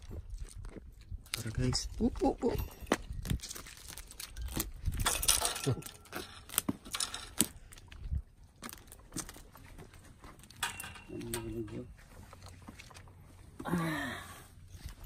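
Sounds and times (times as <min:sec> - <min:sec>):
handling clicks and rustling: 0:02.7 - 0:13.4.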